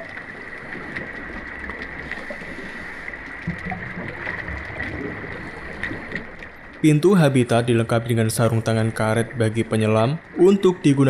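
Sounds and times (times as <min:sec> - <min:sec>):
small clicks and gurgles: 0:00.0 - 0:06.8
underwater ambience: 0:00.0 - 0:11.0.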